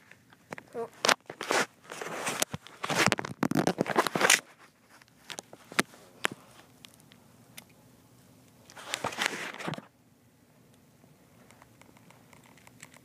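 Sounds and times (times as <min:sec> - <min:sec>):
camera handling rustle: 0:00.2 - 0:07.1, 0:08.7 - 0:09.9.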